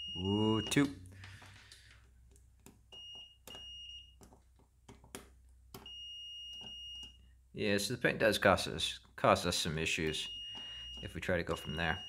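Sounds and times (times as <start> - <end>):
multimeter continuity beep: 2.9 - 4.2, 5.8 - 7.2, 10.1 - 12.0.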